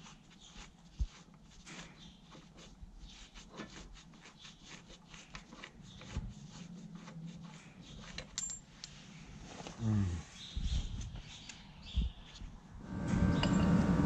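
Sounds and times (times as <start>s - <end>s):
faint low hum: 12.8s - 14.0s.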